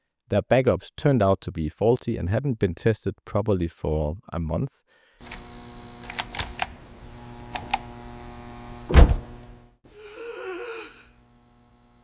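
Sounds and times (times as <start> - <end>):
electrical hum: 5.2 - 12.0
heavy thump: 8.9 - 9.3
man groaning: 9.9 - 11.2.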